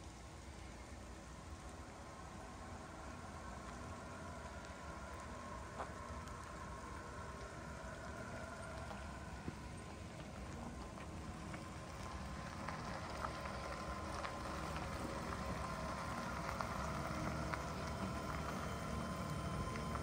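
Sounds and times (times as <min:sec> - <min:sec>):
light hail pattering: 0:00.0 - 0:20.0
pickup engine and tyre hum: 0:00.0 - 0:20.0.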